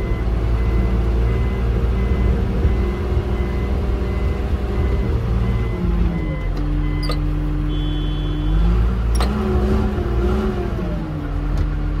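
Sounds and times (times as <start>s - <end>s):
backup alarm beeping: 0.0s - 8.7s
bulldozer diesel engine running: 0.0s - 12.0s.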